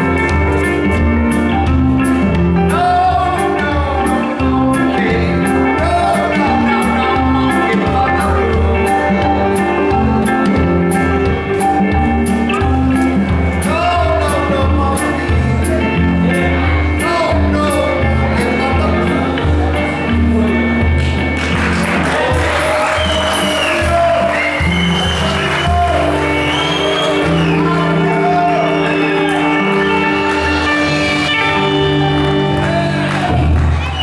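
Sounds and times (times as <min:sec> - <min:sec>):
blues band playing: 0:00.0 - 0:34.0
person singing through microphone: 0:02.5 - 0:21.0.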